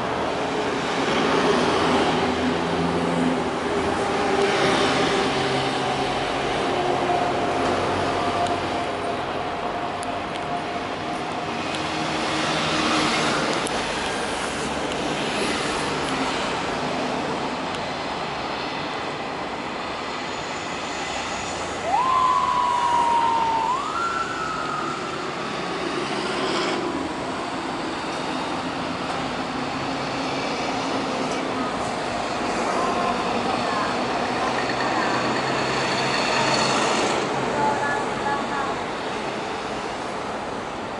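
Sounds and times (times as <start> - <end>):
road traffic passing: 0.0 - 40.9
motorcycle siren wailing: 21.8 - 25.2.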